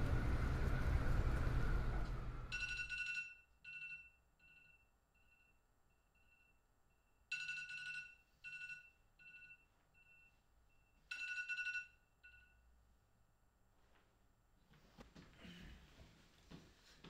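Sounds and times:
smartphone alarm beeping: 2.6 - 12.6.

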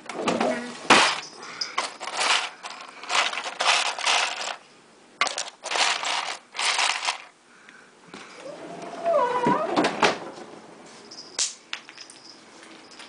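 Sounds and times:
plastic bags crinkling: 0.9 - 4.6, 5.2 - 7.3
ice cubes clinking: 1.0 - 4.6, 5.2 - 7.3.

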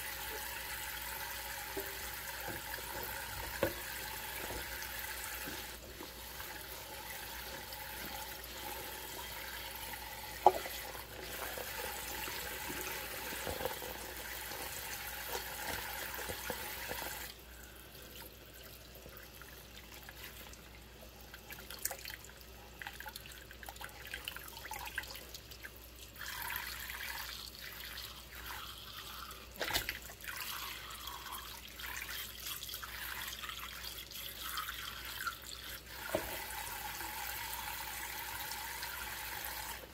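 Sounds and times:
tap water running into sink: 0.0 - 17.4, 22.9 - 39.9.

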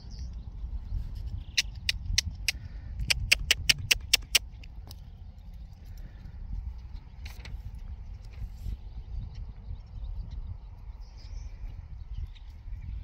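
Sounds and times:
wind rumble on microphone: 0.0 - 13.0
sharp close clicks: 1.6 - 4.7.

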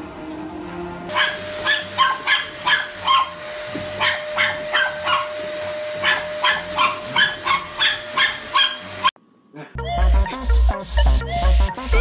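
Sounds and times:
dog barking: 1.1 - 3.4, 4.0 - 5.4, 6.0 - 9.0
vacuum cleaner motor whine: 1.1 - 9.1.

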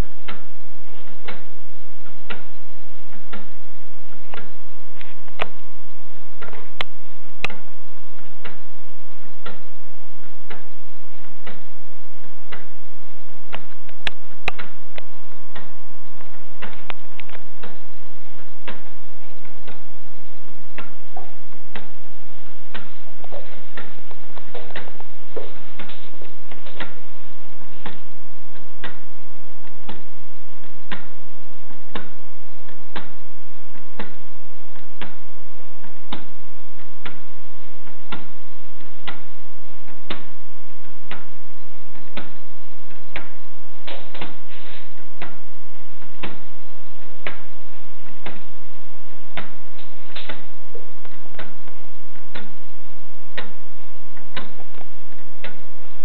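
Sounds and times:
pendulum clock ticking: 0.0 - 56.0
steady hum: 0.0 - 56.0.

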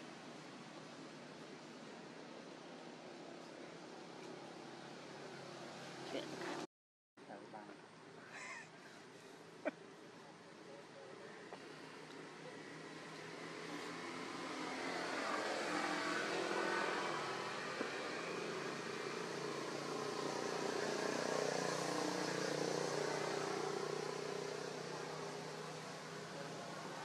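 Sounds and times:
vehicle passing by: 11.8 - 27.0.

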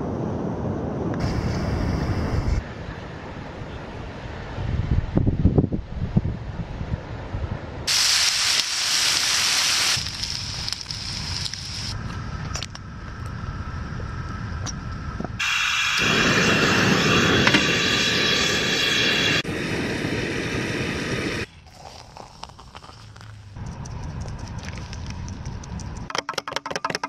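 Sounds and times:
bacon sizzling on a hotplate: 7.9 - 12.0
gas burner rushing: 7.9 - 21.5.

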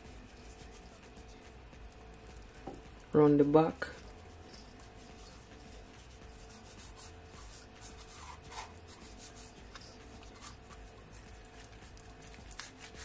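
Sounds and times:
hands rubbing fish skin: 4.2 - 13.0.

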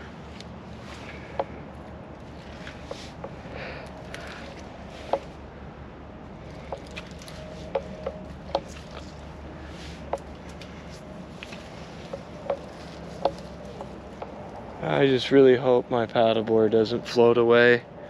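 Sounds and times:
steady low hum: 0.0 - 18.0
twigs snapping: 0.3 - 5.4, 6.4 - 9.4
footsteps through sticks and mud: 6.4 - 14.6.

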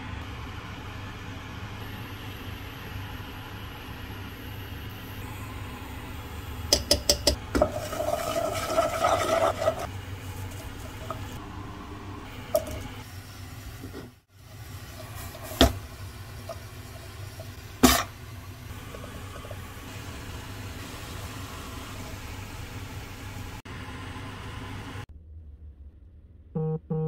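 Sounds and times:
steady low hum: 0.0 - 27.0
spoon clicking on frying pan: 6.8 - 7.4.

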